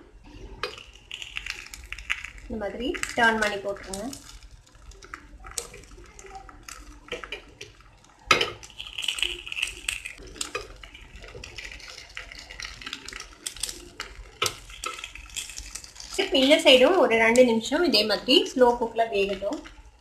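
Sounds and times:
oil sizzling: 0:00.0 - 0:20.0.

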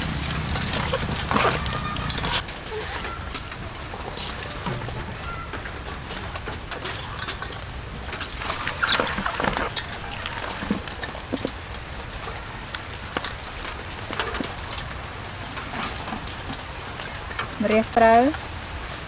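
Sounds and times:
food tossed in metal bowl: 0:00.0 - 0:12.2.

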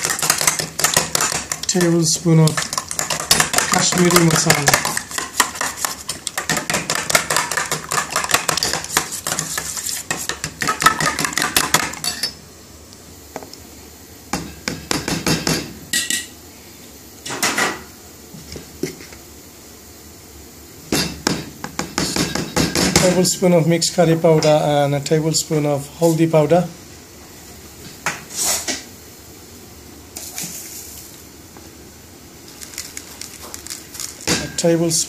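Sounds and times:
whisk clattering in metal bowl: 0:00.0 - 0:12.2.

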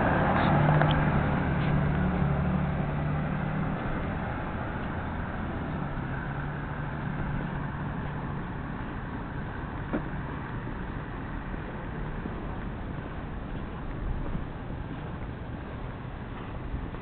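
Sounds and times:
camera rumbling noise: 0:03.7 - 0:17.0.

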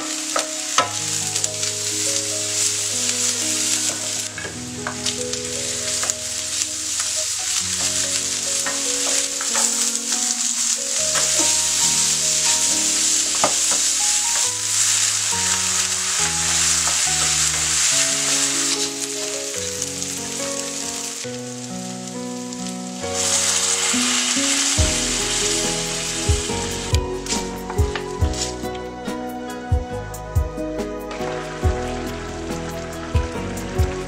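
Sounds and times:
food sizzling in frying pan: 0:00.0 - 0:34.0
gentle instrumental music: 0:00.0 - 0:34.0
stirring ticks: 0:05.8 - 0:20.0.

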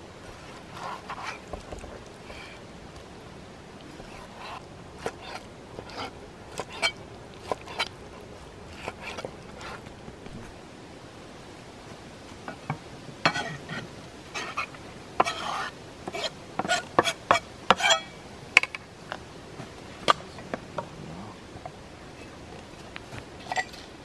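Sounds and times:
knife scraping cutting board: 0:04.0 - 0:07.9, 0:13.3 - 0:18.0.

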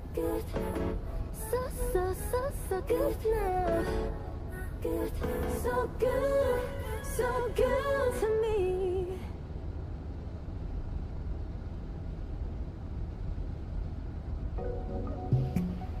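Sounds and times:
woman singing pop vocal: 0:00.0 - 0:09.4.

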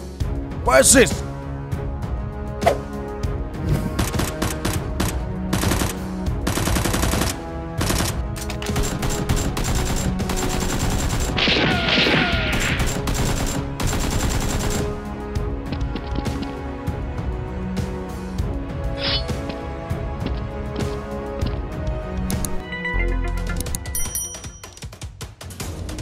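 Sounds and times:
background music: 0:00.0 - 0:26.0
rapid automatic gunfire: 0:04.0 - 0:15.0.

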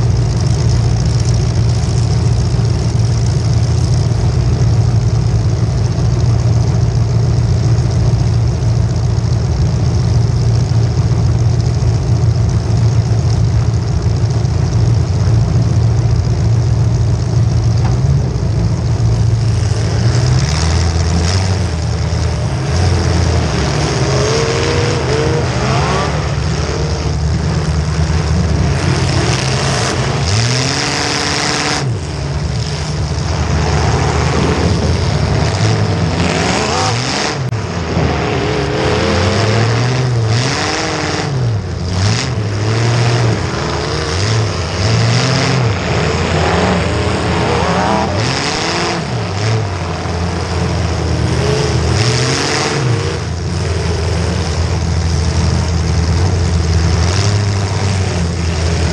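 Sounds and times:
car engines revving: 0:00.0 - 0:58.9.

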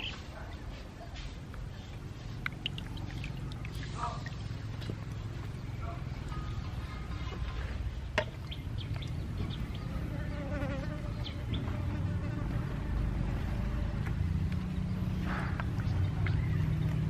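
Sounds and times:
steady low buzz: 0:08.5 - 0:17.0.

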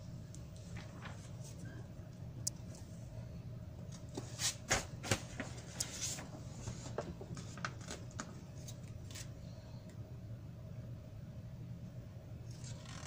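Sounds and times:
magazine pages rustling: 0:00.5 - 0:01.7, 0:04.0 - 0:09.4.

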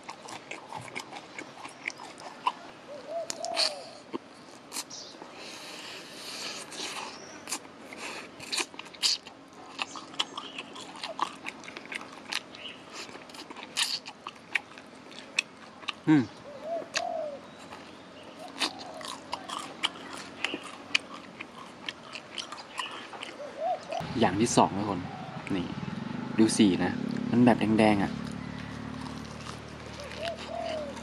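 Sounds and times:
crunchy chewing close up: 0:00.0 - 0:24.1, 0:28.0 - 0:31.0
sound dropping steeply in pitch: 0:24.0 - 0:29.8.

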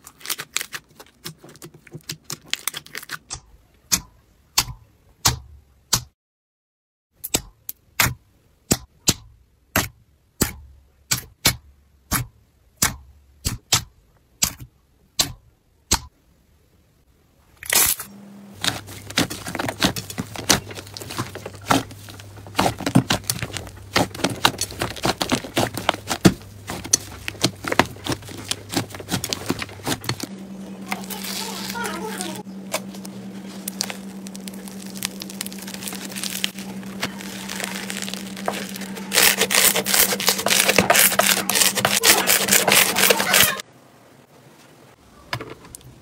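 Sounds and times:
slime kneaded with crackling pops: 0:18.6 - 0:43.6.

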